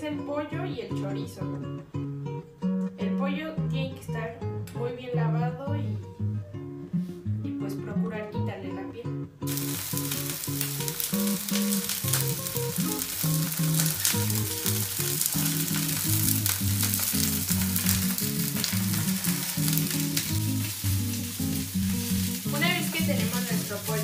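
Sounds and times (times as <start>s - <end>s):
background music: 0.0s - 24.0s
chicken sizzling in frying pan: 9.5s - 24.0s
metal tongs turning food: 9.5s - 24.0s.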